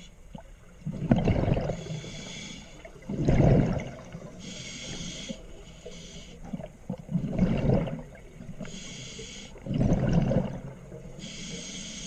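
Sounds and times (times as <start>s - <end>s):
exhaled bubbles underwater: 0.3s - 4.5s, 6.4s - 8.7s, 9.6s - 11.3s
regulator inhalation hiss: 1.8s - 2.8s, 4.4s - 6.4s, 8.7s - 9.6s, 11.2s - 12.0s.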